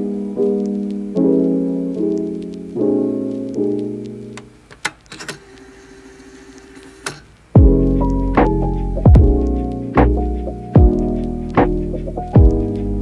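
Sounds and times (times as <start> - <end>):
soft piano chords: 0.0 - 4.7, 7.6 - 13.0
clicks: 3.3 - 5.8, 6.6 - 7.4.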